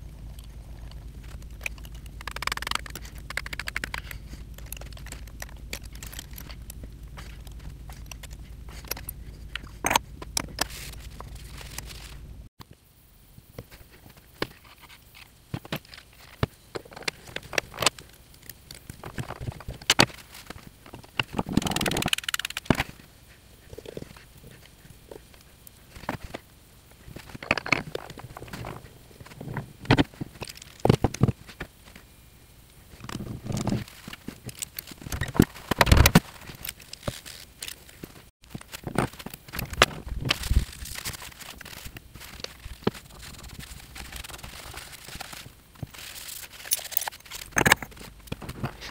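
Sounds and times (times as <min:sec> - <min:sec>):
metal parts clicking and knocking: 0:00.2 - 0:12.2, 0:20.8 - 0:22.9, 0:27.2 - 0:28.8, 0:33.0 - 0:48.9.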